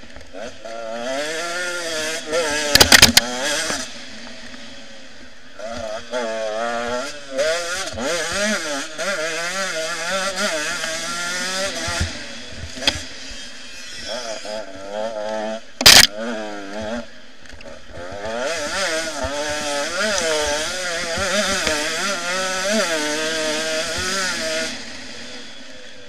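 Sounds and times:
motorcycle engine revving: 0:00.3 - 0:26.0.

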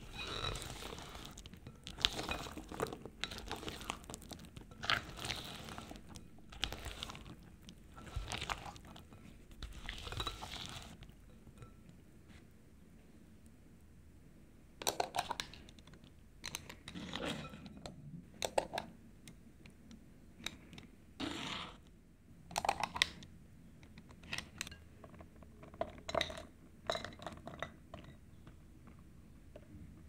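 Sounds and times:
spoon scraping in muffin tin: 0:00.0 - 0:11.7, 0:21.2 - 0:21.8
patter of crumble topping: 0:00.0 - 0:11.8.

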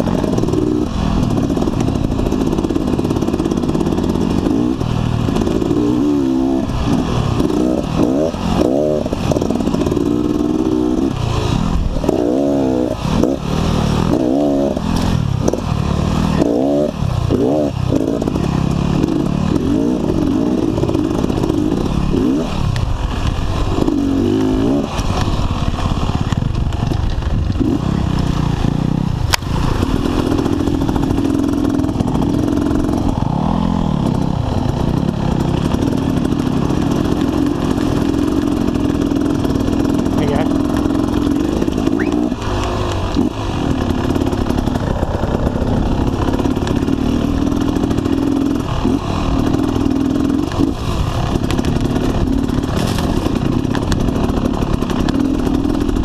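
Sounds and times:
bike rattling: 0:00.0 - 0:56.0
dirt bike engine revving: 0:00.0 - 0:56.0.

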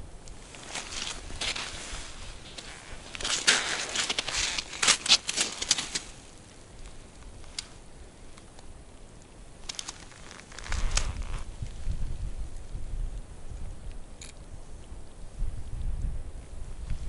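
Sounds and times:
ice crust crunching and clicking: 0:00.2 - 0:11.8.

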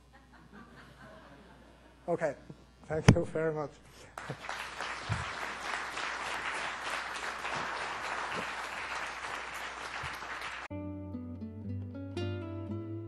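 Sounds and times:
audience applauding: 0:04.1 - 0:10.7
instrumental music: 0:10.7 - 0:13.0.

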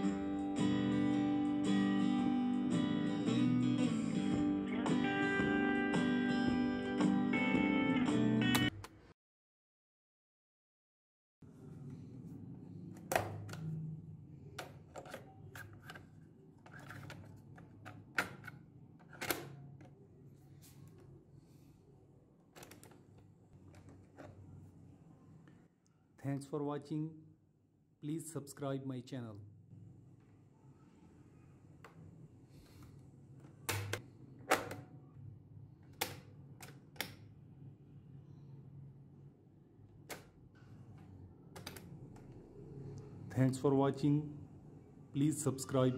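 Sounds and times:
plastic buttons clacking: 0:33.5 - 0:34.8, 0:41.6 - 0:41.9.

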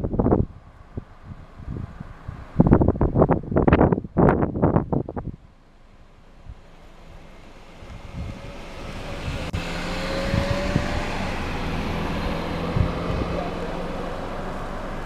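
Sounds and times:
car driving past: 0:05.9 - 0:15.0.

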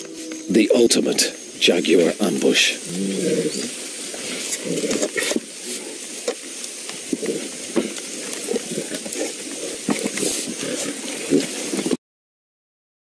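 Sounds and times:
steady recording hiss: 0:00.0 - 0:12.0
animal stepping through leaf litter: 0:02.0 - 0:12.0.

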